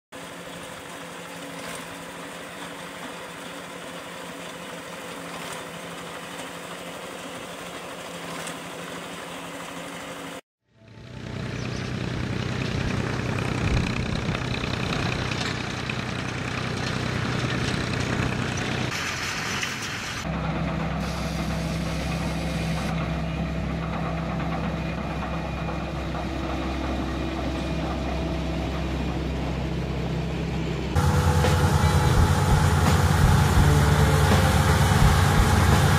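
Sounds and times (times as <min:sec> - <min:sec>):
combine harvester engine: 0:00.2 - 0:35.9
tractor engine running: 0:10.8 - 0:35.9.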